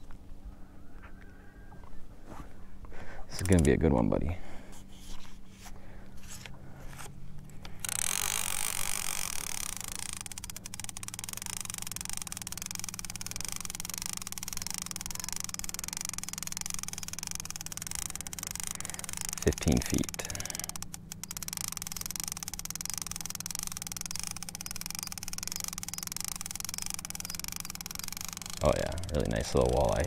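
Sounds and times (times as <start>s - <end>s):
fishing reel gear whir: 3.3s - 3.9s, 7.5s - 30.0s
outboard motor humming: 7.6s - 30.0s.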